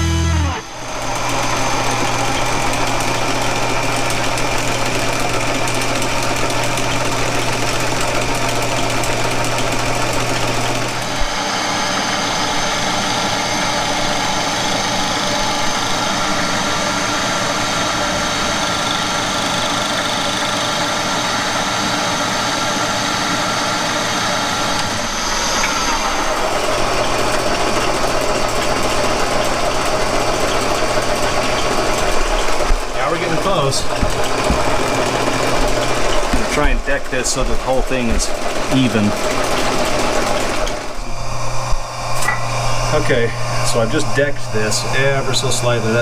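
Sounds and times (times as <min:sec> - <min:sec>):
milling machine whirring: 0:00.0 - 0:46.0
steady low hum: 0:09.1 - 0:38.6, 0:40.7 - 0:46.0.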